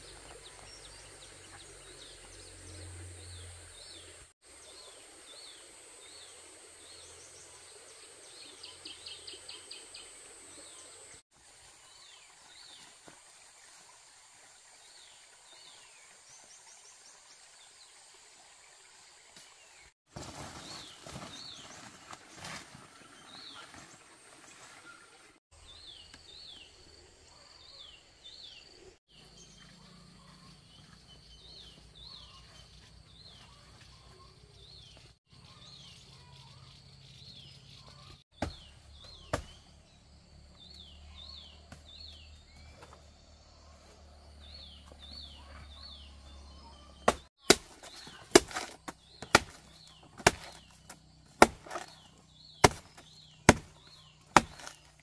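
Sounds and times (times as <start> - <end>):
bird chirping: 24.8 - 55.0
knife chopping plant trunk: 38.4 - 39.7, 47.0 - 55.0.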